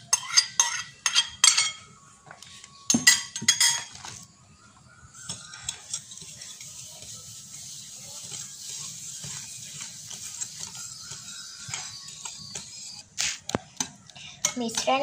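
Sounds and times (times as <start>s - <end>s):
whisk beating in ceramic bowl: 5.2s - 13.0s
whisk clinking on bowl: 5.2s - 13.0s.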